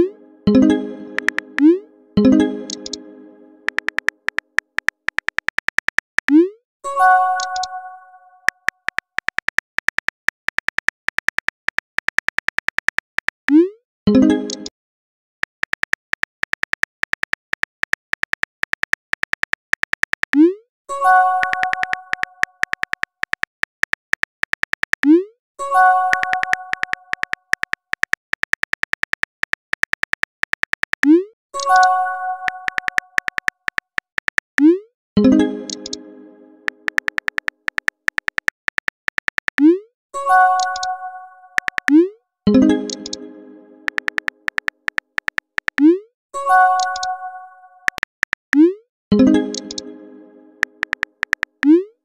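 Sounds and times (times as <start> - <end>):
chiming message tone: 0.0 - 3.8, 35.2 - 36.9, 42.5 - 44.1, 49.1 - 50.8
keyboard typing clicks: 0.4 - 3.1, 3.7 - 6.4, 7.4 - 7.8, 8.5 - 13.6, 14.3 - 14.7, 15.4 - 20.5, 21.3 - 25.2, 26.0 - 39.7, 40.6 - 46.0, 46.8 - 47.2, 47.8 - 51.9
phone keyboard tap clicks: 3.7 - 6.3, 21.4 - 25.1, 32.5 - 34.6, 36.8 - 39.6, 41.6 - 42.0, 43.9 - 45.8, 50.7 - 51.7.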